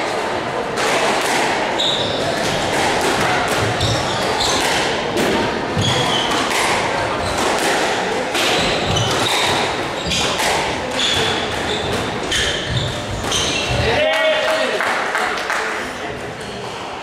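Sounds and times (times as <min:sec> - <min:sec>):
squash ball off rackets: 0:00.8 - 0:13.9
shoes squeaking on wooden floor: 0:03.6 - 0:04.8, 0:05.8 - 0:06.5, 0:08.5 - 0:14.0.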